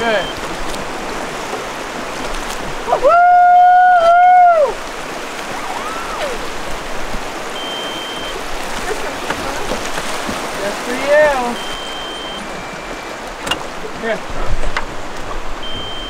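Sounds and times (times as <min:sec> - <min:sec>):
river water rushing over rapids: 0:00.0 - 0:16.0
loud high whoop: 0:02.9 - 0:04.8, 0:05.5 - 0:06.5
faint rising and falling call: 0:05.5 - 0:06.5, 0:07.5 - 0:08.4.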